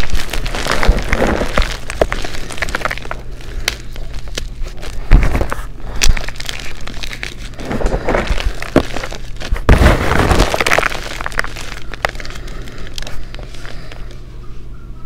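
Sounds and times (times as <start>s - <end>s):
chalk blocks crunching: 0.0s - 14.2s.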